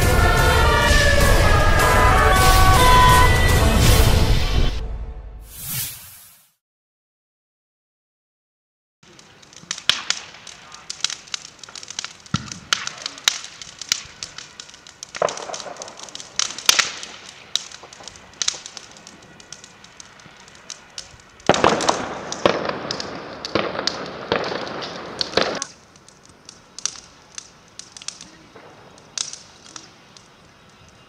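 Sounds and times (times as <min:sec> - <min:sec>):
fire crackling with pops: 0:09.0 - 0:31.0.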